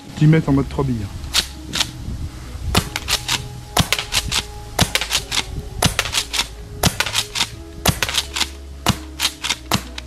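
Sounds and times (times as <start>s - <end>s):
airsoft shotgun pops: 2.8s - 10.0s.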